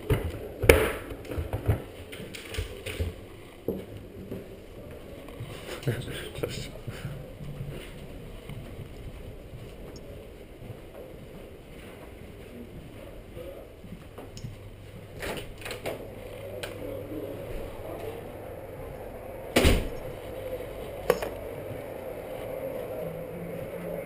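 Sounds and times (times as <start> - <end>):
office room noise: 0.0 - 24.0
loud thump: 19.6 - 20.0.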